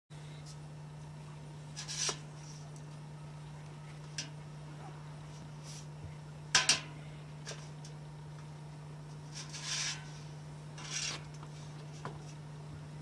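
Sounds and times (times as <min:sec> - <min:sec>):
steady low hum: 0:00.1 - 0:13.0
metal clanks: 0:06.6 - 0:07.0.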